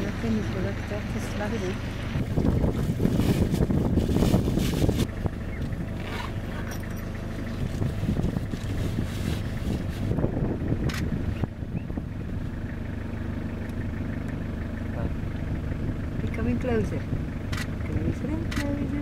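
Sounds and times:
engine running: 0.0 - 19.0
wind on microphone: 2.1 - 5.9, 7.6 - 12.4.

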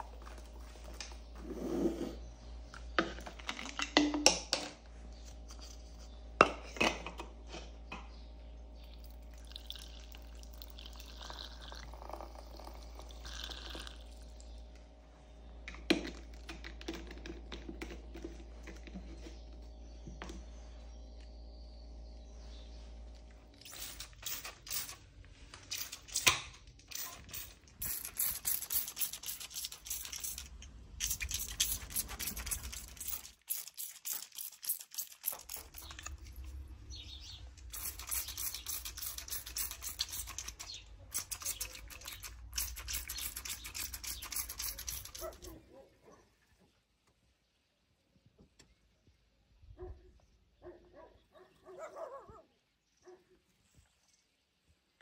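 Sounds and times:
spray bottle clicking and spraying: 23.6 - 25.0, 25.6 - 36.4, 37.6 - 45.5.

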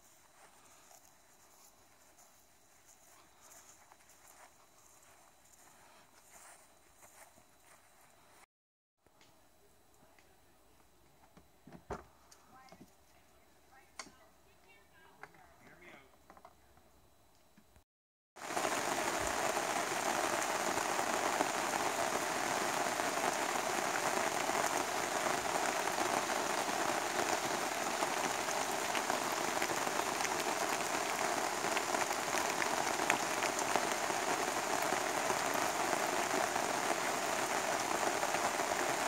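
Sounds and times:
rain on canopy: 0.0 - 1.7, 18.4 - 39.0.

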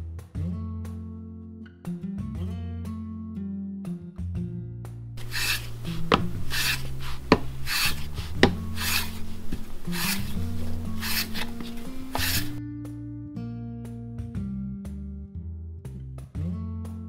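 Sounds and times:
hand plane shaving wood: 5.2 - 12.6
sharp wooden knocks: 5.2 - 12.6
guitar music: 5.2 - 14.8.

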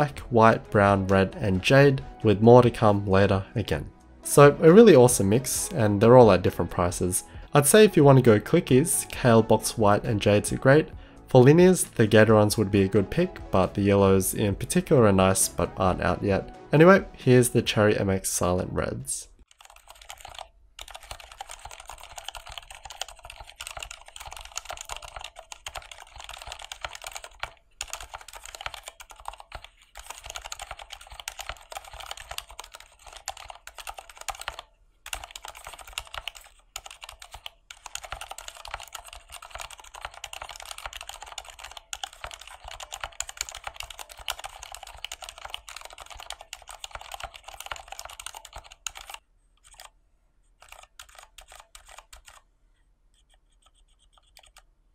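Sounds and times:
mechanical keyboard typing: 19.5 - 49.9, 50.6 - 52.4, 53.2 - 54.7.

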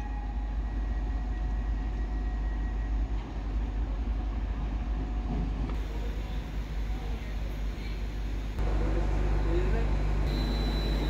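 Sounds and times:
steam locomotive rumble and hiss: 3.2 - 11.0.

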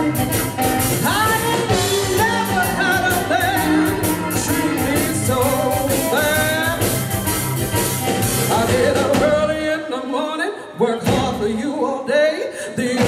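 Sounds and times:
harmonica playing bending lines: 0.0 - 9.2
electric guitar: 0.0 - 9.8
drum kit: 0.0 - 9.9, 11.0 - 11.6
keyboard: 0.0 - 10.1.

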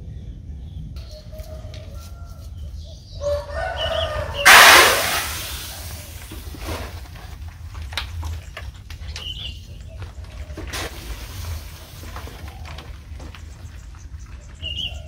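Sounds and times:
tyre crushing foam: 4.4 - 8.8.

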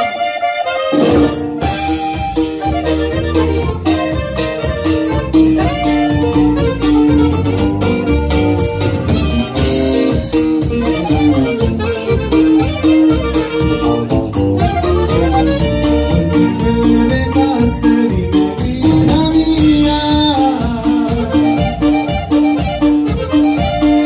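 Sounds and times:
alto saxophone: 0.0 - 24.0
button accordion: 0.0 - 24.0
drum kit: 0.0 - 24.0
bass line: 0.9 - 24.0.

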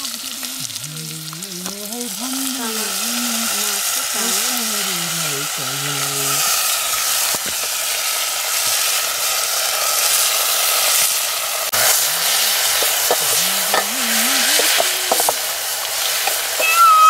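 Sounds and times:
bamboo shoots sizzling in pot: 0.0 - 17.0
steel ladle stirring: 11.8 - 15.5.

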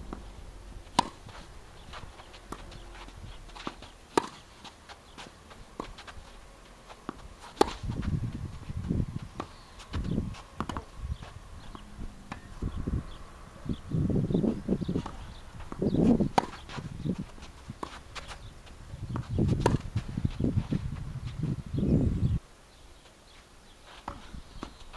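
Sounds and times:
footsteps shuffling on court: 0.8 - 11.9, 14.4 - 21.7, 23.0 - 24.9
tennis ball hit by racket: 0.9 - 6.2, 6.9 - 8.0, 9.2 - 11.0, 14.9 - 18.4, 19.1 - 20.0.

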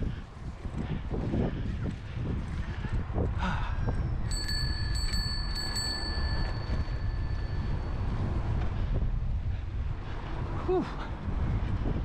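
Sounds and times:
wind rumble on microphone: 0.0 - 12.0
bicycle bell ringing: 4.2 - 8.2.

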